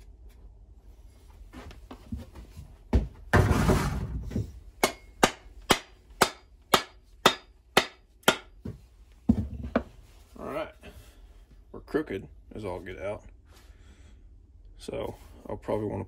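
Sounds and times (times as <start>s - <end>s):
thud: 3.0s - 4.6s
axe handle knocking: 4.8s - 8.8s.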